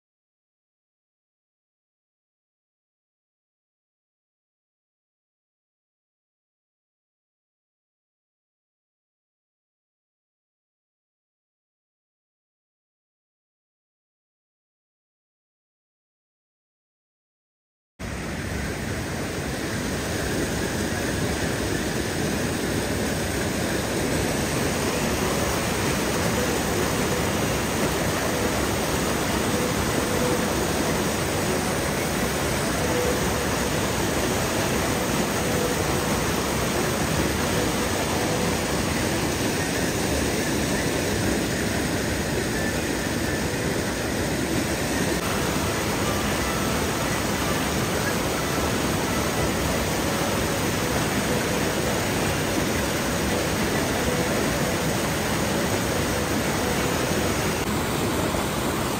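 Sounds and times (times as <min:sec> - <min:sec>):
stream rushing over rocks: 0:18.0 - 0:58.9.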